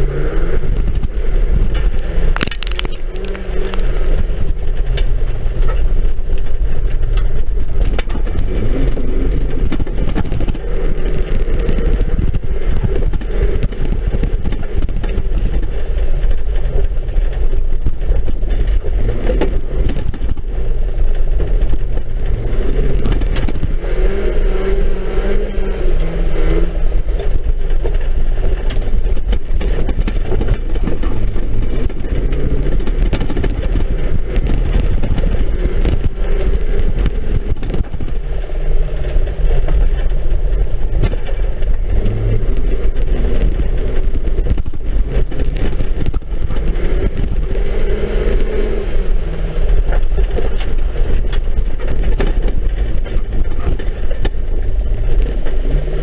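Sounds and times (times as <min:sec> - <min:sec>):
car engine and road rumble: 0:00.0 - 0:56.0
knocks and rattles of car shell: 0:00.2 - 0:23.9, 0:27.0 - 0:48.5, 0:49.6 - 0:56.0.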